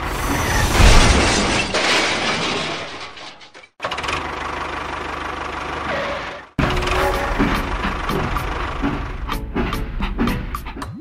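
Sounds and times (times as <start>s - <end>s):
vehicle engine running roughly: 3.9s - 10.2s
engine idling with low hum: 4.0s - 9.6s.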